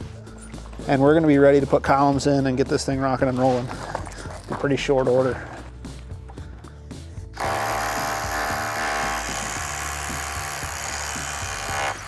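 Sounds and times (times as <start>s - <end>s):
background music: 0.0s - 12.0s
hammer drill boring into concrete: 7.4s - 12.0s.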